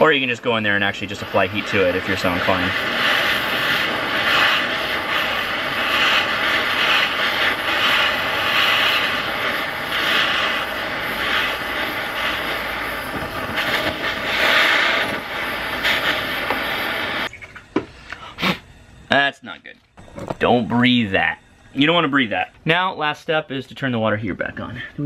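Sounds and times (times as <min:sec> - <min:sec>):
gas torch hissing roar: 0:00.0 - 0:19.2.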